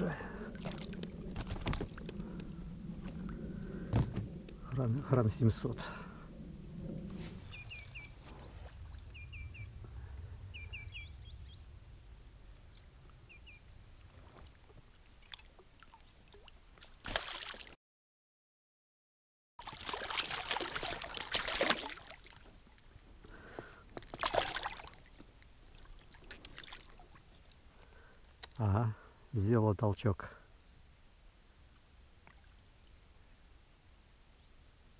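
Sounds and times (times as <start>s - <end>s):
water splashing and sloshing: 0.0s - 4.8s, 13.9s - 17.8s, 19.6s - 28.6s
small birds chirping: 7.3s - 11.8s, 12.7s - 14.5s.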